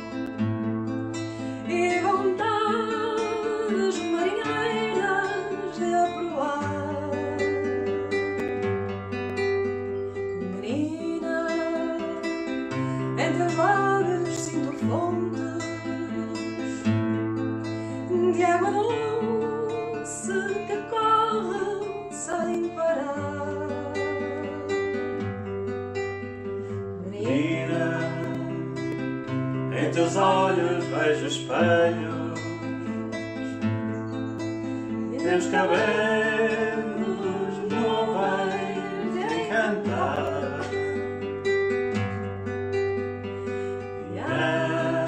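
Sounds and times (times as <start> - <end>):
acoustic guitar: 0.0 - 45.0
person singing with vibrato: 1.5 - 8.4, 10.6 - 17.0, 27.0 - 29.1, 29.7 - 33.5, 34.8 - 41.3, 43.9 - 45.0.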